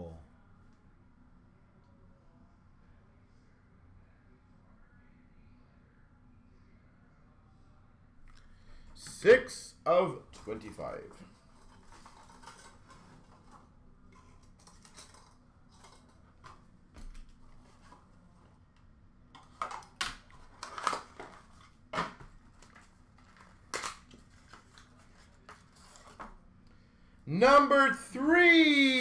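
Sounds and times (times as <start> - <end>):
cards and packaging rustling: 10.2 - 18.6, 19.4 - 26.4.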